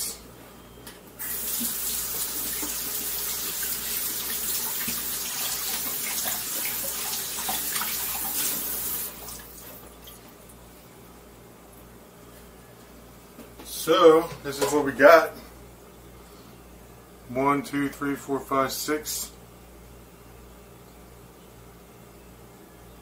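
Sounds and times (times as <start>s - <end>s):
water running over hands: 1.3s - 10.1s.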